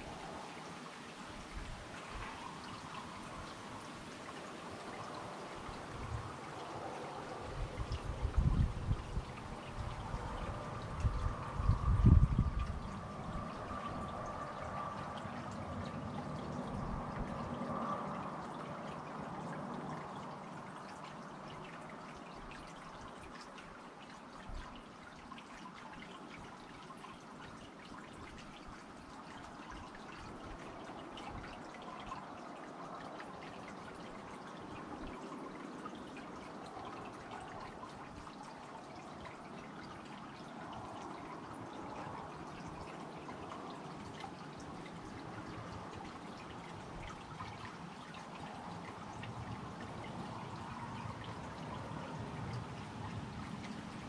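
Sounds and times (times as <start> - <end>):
fountain trickling and splashing: 0.0 - 54.0.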